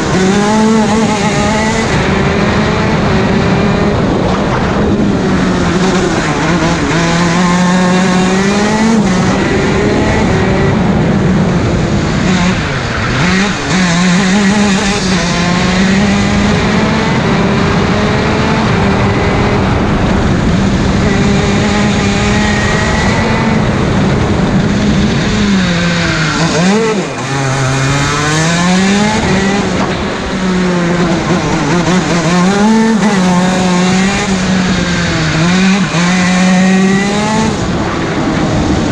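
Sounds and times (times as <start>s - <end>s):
kart engine revving: 0.0s - 38.9s.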